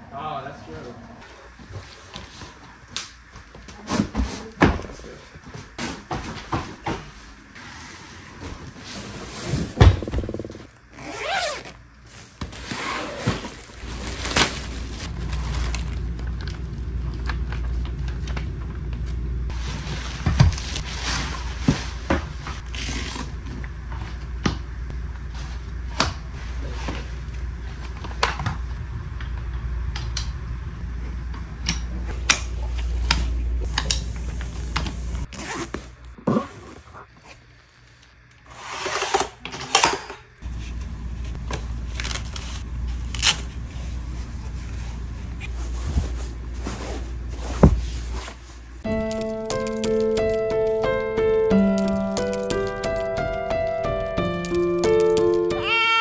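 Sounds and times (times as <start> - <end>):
cardboard and plastic rustling: 1.4 - 24.2, 40.4 - 48.8
steady low hum: 11.6 - 38.4, 40.2 - 52.7.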